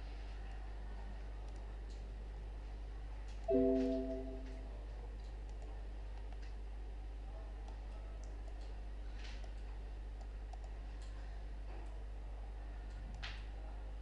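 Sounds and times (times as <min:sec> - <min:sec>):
low electrical hum: 0:00.0 - 0:14.0
computer mouse clicks: 0:09.3 - 0:11.2.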